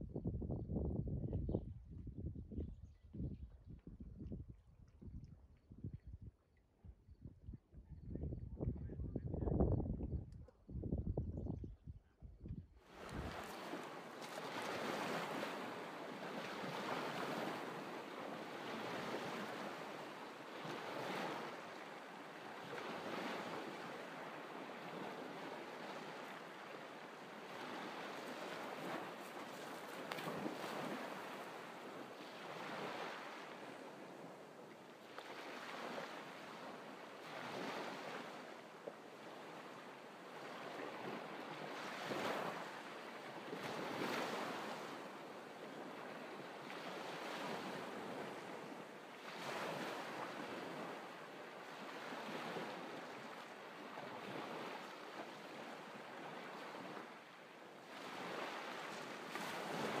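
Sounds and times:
waves breaking on a pebble beach: 12.9 - 60.0.

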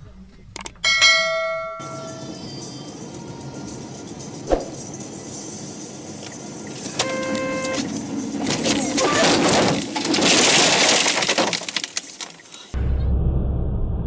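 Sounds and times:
road and engine rumble: 1.8 - 14.0
car horn blast: 6.9 - 7.9
car crash crunching impacts: 8.5 - 12.4.

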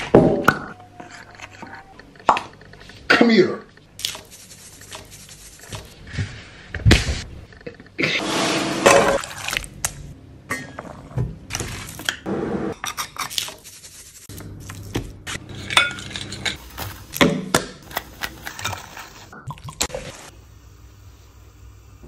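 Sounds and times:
utensils clinking on glass bowl: 15.6 - 16.7.

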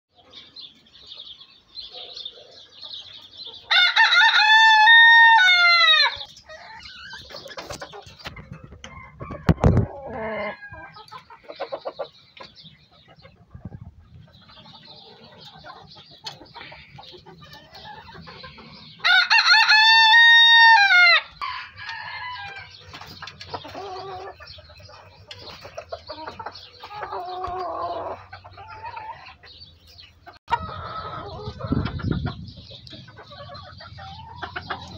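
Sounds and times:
chickens clucking: 0.1 - 34.9
rooster crowing: 3.7 - 6.2, 19.0 - 22.7.

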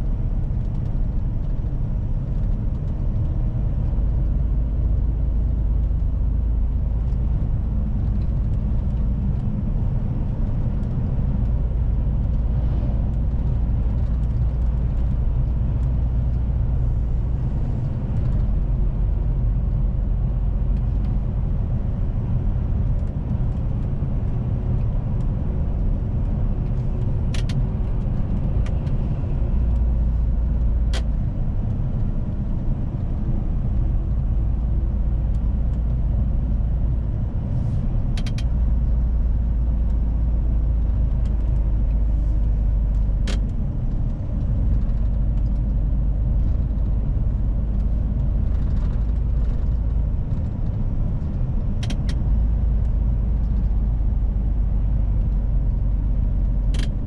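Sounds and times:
diesel truck engine: 0.0 - 57.0
road rumble: 0.0 - 57.0
sharp clicks or rattles: 51.2 - 52.3.

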